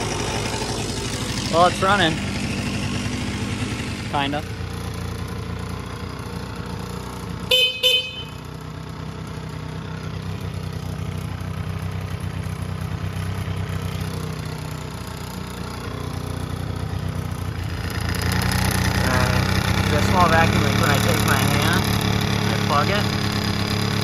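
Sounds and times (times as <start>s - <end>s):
scooter engine idling unevenly: 0.0s - 24.0s
horn beeps: 7.5s - 8.4s.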